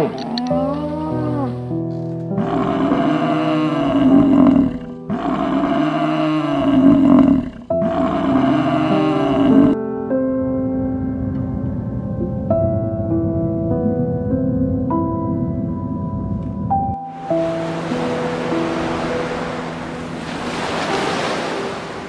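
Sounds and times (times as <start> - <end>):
large mammal roaring: 0.0 - 1.7, 2.3 - 9.8
soft piano music: 0.0 - 22.0.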